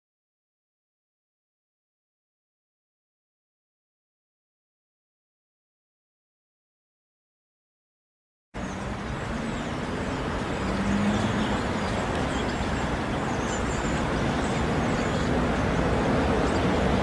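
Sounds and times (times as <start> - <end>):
distant road traffic: 8.6 - 17.0.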